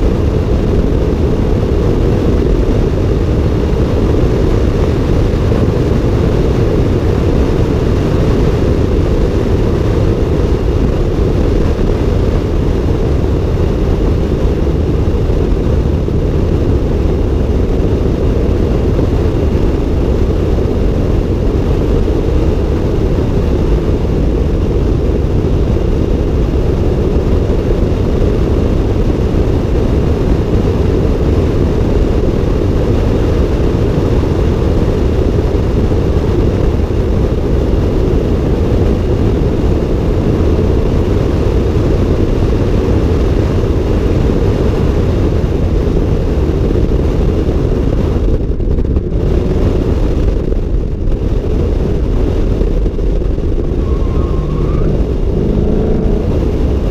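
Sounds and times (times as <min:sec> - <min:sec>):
road noise: 0:00.0 - 0:56.9
wind rumble on microphone: 0:00.0 - 0:56.9.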